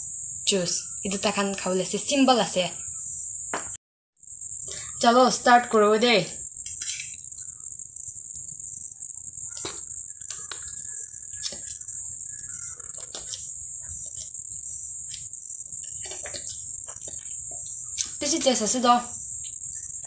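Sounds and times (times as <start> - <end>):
high-pitched whine: 0.0 - 20.0
chewing: 9.5 - 14.4, 15.0 - 18.2.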